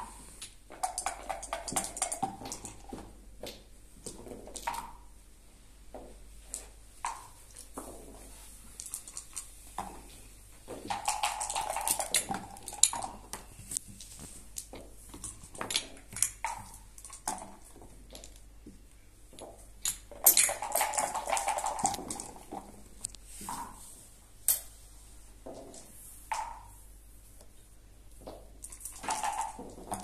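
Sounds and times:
checkers clicking on wooden board: 0.4s - 2.9s, 8.8s - 9.5s, 10.8s - 13.6s, 19.8s - 22.6s
dice clattering onto board: 0.7s - 2.9s, 10.8s - 13.5s, 19.8s - 22.6s, 28.6s - 30.0s
dice rattling in a cup: 0.7s - 2.9s, 8.7s - 9.6s, 10.8s - 13.4s, 14.6s - 18.5s, 19.8s - 22.8s, 28.6s - 30.0s.

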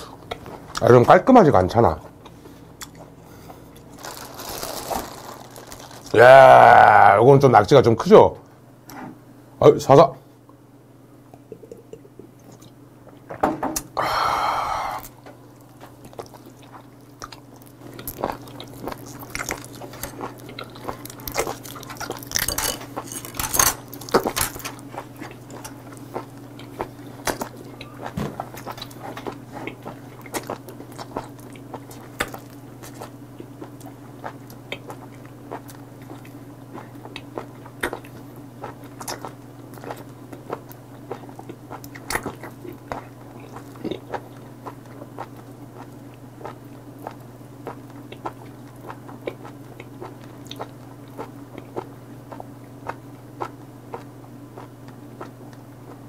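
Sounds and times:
steady low hum: 0.0s - 56.0s
wet chewing and mouth smacks: 15.6s - 56.0s.

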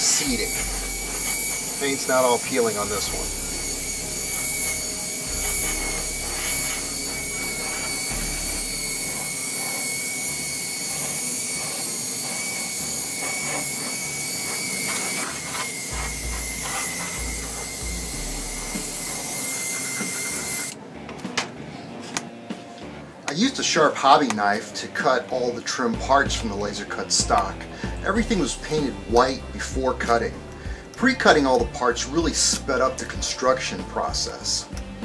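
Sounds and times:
airbrush spraying: 0.0s - 20.8s.

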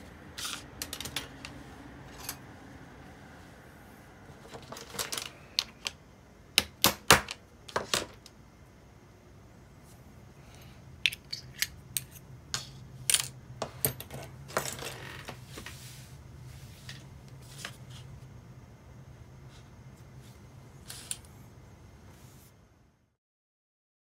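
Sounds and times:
low steady hum: 0.0s - 23.2s
small metal parts clinking: 4.5s - 5.9s.

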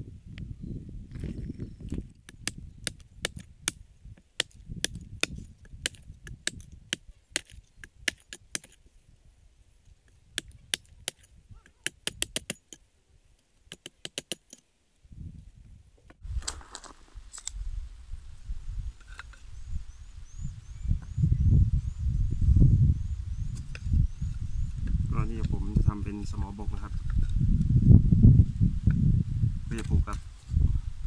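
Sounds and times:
hatchet chopping wood: 2.2s - 3.8s, 4.4s - 8.8s, 10.3s - 12.8s, 13.7s - 14.6s.

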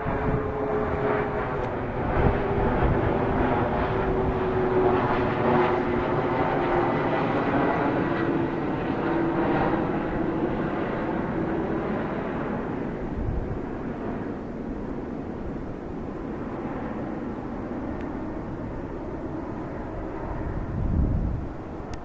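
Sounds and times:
wind buffeting microphone: 0.0s - 7.8s, 13.0s - 14.1s, 18.5s - 22.0s.

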